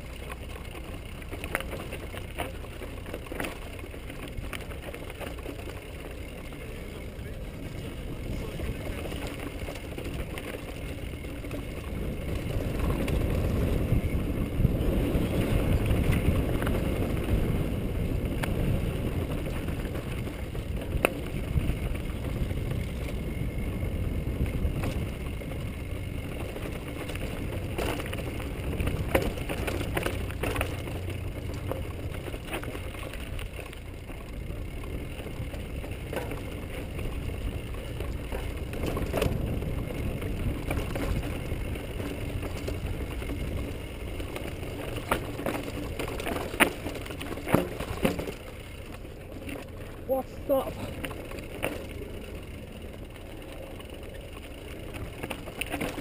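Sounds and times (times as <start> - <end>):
bike rattling: 0.0 - 56.0
bike knocking on rocks: 18.1 - 50.0.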